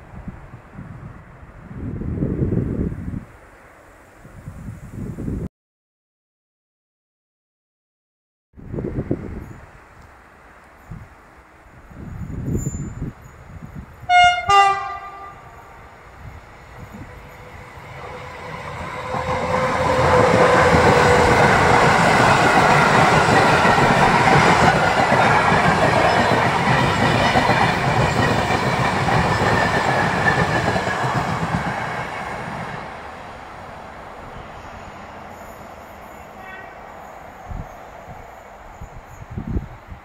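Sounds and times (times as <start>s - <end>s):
train wheels rushing on rails: 14.6s - 40.0s.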